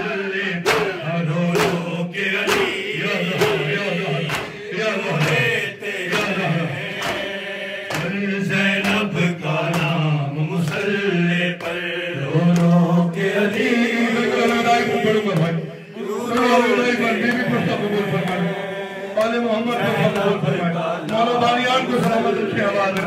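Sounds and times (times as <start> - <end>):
man chanting into a microphone: 0.0 - 23.0
mourners singing along: 0.0 - 23.0
chest-beating slaps: 0.6 - 8.2, 8.8 - 10.0, 10.6 - 11.0, 12.5 - 12.8.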